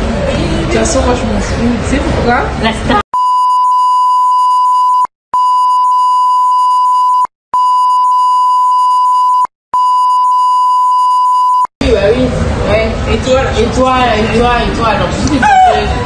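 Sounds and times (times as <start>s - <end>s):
censor bleep tone: 3.2s - 11.7s.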